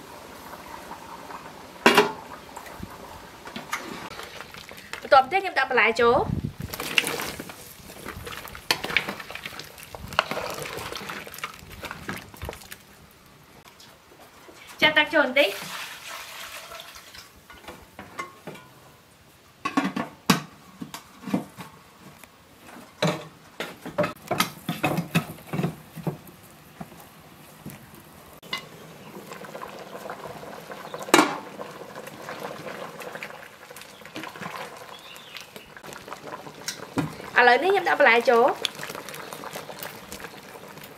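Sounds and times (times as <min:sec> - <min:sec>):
pot of curry boiling and bubbling: 0:00.0 - 0:14.8, 0:15.5 - 0:18.8, 0:24.0 - 0:40.9
metal ladle stirring and scraping: 0:06.7 - 0:12.8.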